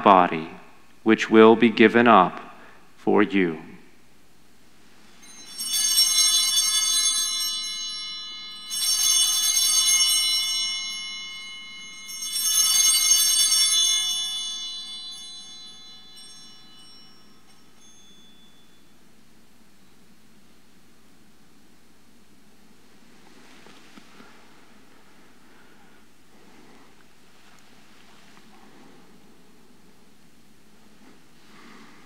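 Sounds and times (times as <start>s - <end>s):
altar bells ringing: 5.0s - 19.3s.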